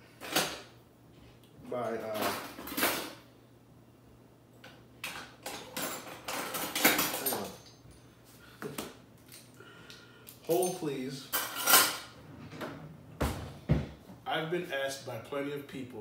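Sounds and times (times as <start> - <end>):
dishes and utensils clinking: 5.0 - 7.9, 10.6 - 12.2.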